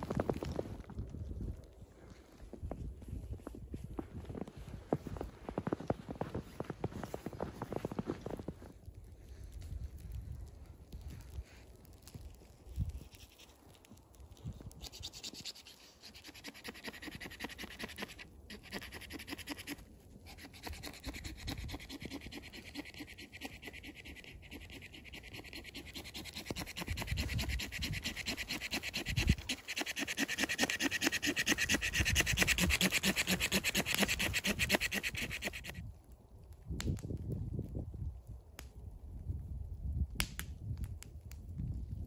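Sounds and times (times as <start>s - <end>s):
footsteps crunching through snow: 2.6s - 8.8s.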